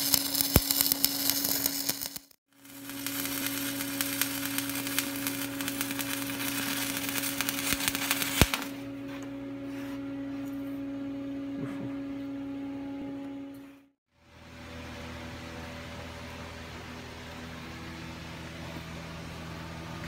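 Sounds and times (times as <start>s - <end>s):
welding arc crackling: 0.0s - 8.9s
steady hum: 0.0s - 20.0s.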